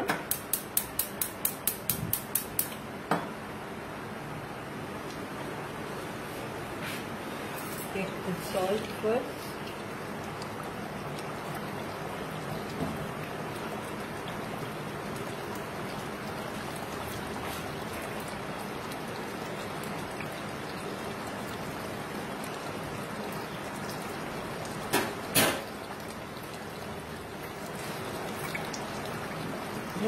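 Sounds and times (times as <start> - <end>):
gravy bubbling in a pot: 7.4 - 30.0.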